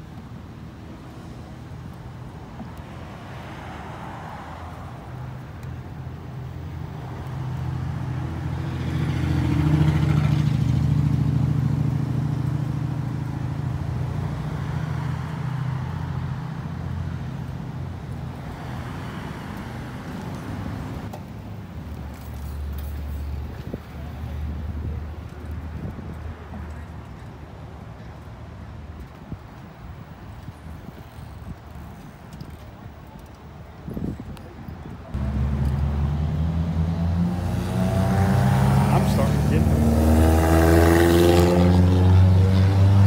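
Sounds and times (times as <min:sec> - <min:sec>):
car engine: 0:35.2 - 0:43.0.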